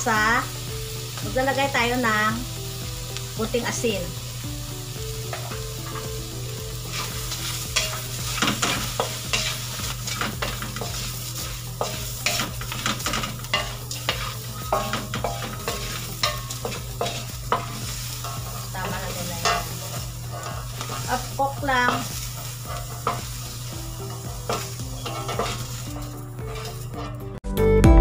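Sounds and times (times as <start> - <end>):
shrimp sizzling in a wok: 0.0 - 27.4
spatula scraping a wok: 4.8 - 27.4
spatula tapping a wok: 6.9 - 26.8.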